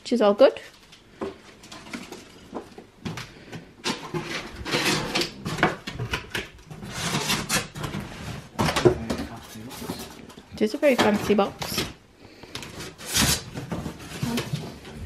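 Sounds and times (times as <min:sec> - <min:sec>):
cardboard scraping and rustling: 0:03.9 - 0:11.9, 0:12.7 - 0:15.0.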